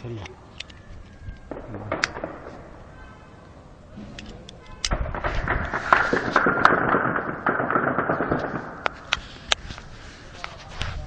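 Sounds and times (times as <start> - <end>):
heavy gunfire: 1.5 - 3.0, 4.9 - 9.0.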